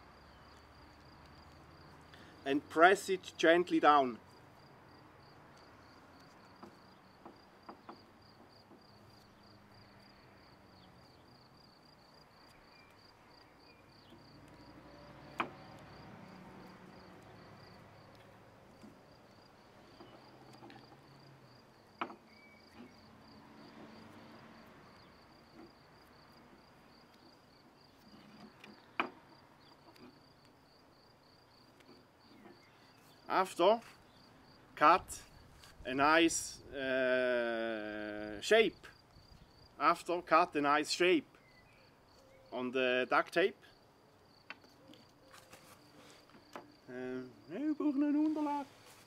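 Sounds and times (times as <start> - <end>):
crickets chirping: 0.0 - 49.0
tape rustling: 44.6 - 46.6.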